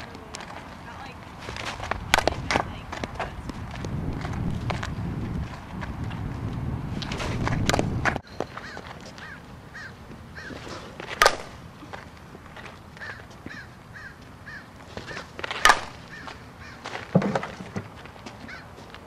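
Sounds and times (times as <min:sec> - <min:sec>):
bat cracking against ball: 0:01.4 - 0:04.9, 0:10.1 - 0:13.5, 0:14.8 - 0:18.6
bird chirping: 0:08.2 - 0:10.6
dull thump: 0:17.1 - 0:17.9.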